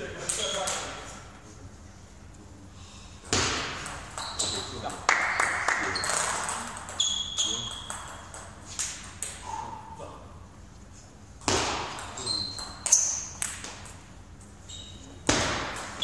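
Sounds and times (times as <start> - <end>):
shoes squeaking on floor: 4.2 - 4.8, 5.9 - 8.3, 14.6 - 15.2.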